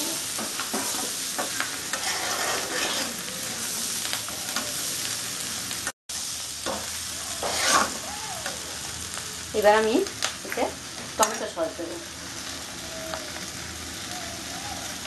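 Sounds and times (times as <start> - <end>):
frying sizzle: 0.0 - 15.0
spatula scraping a pan: 0.4 - 3.9, 6.7 - 8.1.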